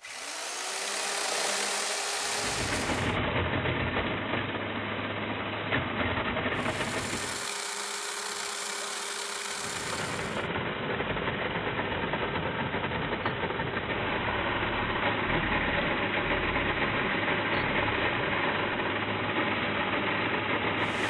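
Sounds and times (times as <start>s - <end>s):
electric chainsaw cutting wood: 0.0s - 3.2s, 6.5s - 10.5s, 20.8s - 21.0s.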